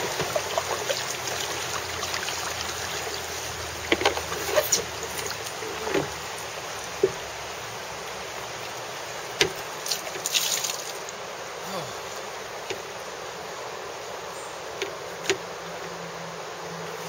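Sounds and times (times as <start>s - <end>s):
paddle strokes splashing: 0.0s - 11.2s
river water rushing: 0.0s - 17.0s
paddle knocking against canoe: 3.8s - 6.3s, 6.9s - 7.3s, 9.3s - 10.3s.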